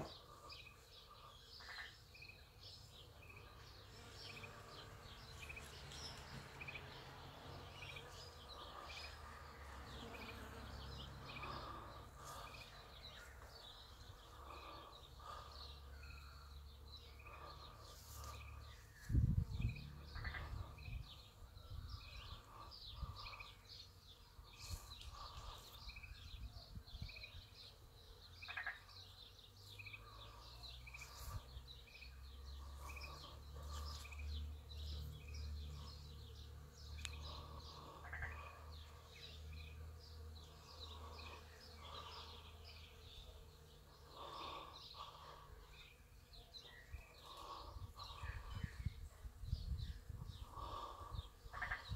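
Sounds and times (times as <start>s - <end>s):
other birds calling: 0.0s - 51.9s
low rumble on microphone: 18.5s - 23.4s.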